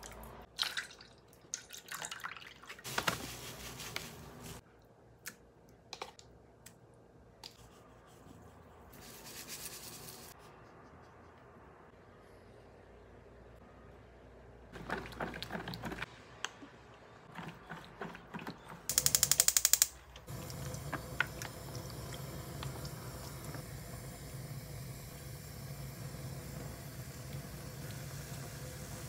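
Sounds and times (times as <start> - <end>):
gas stove igniter clicking: 18.9 - 20.0
gas burner humming: 18.9 - 29.0.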